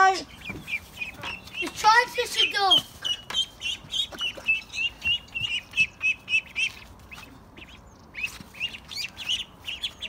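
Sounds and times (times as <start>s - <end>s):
ducklings peeping: 0.0s - 10.0s.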